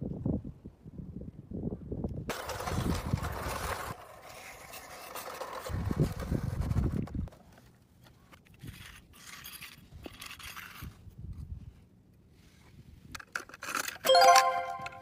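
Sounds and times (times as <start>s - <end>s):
plastic toys scraping snow: 2.3s - 6.8s.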